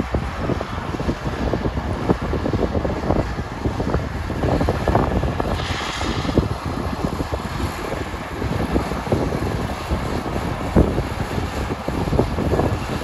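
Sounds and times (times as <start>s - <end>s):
harvesting machinery rattling: 4.5s - 13.0s
short hiss: 5.5s - 6.4s.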